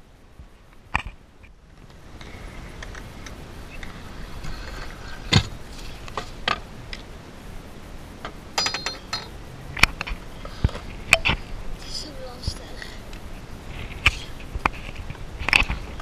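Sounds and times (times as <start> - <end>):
rider and scooter hitting ground: 4.5 - 6.7
metal clinks and clattering: 8.6 - 9.4.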